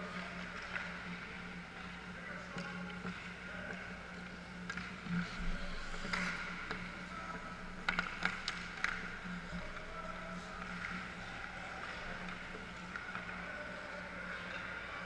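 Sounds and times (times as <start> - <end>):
steady low hum: 0.0 - 15.0
hockey sticks clacking on puck: 0.1 - 1.2, 4.6 - 5.0, 5.9 - 15.0
skates scraping ice: 4.7 - 15.0.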